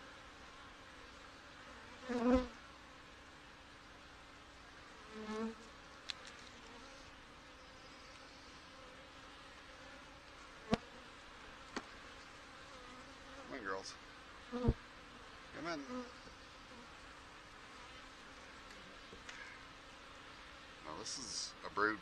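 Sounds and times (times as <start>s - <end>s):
honeybees humming: 4.6s - 22.0s.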